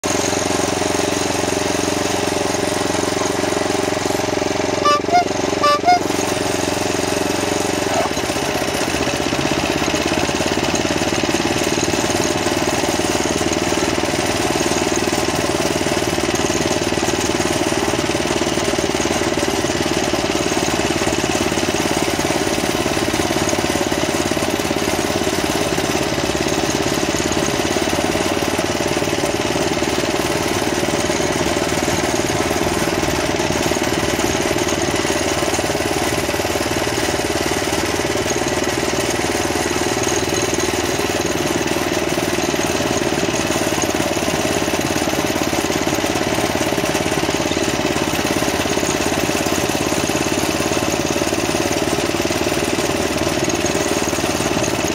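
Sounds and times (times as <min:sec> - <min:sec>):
petrol engine running: 0:00.0 - 0:54.9
short high beeps: 0:04.8 - 0:06.2.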